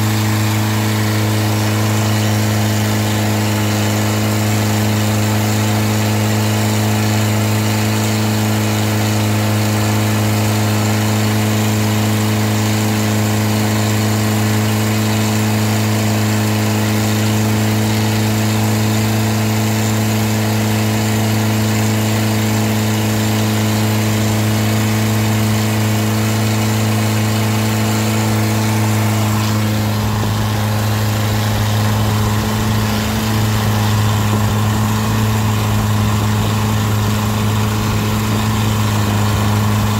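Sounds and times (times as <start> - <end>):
boat engine droning: 0.0 - 39.9
wind: 0.0 - 39.9
spray hissing: 24.5 - 39.9.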